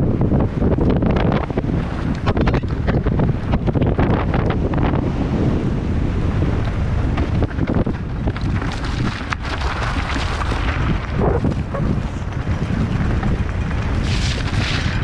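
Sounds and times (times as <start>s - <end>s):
mountain bike rattling: 0.0s - 15.0s
wind buffeting microphone: 0.0s - 15.0s
wheels knocking on stones: 6.6s - 15.0s.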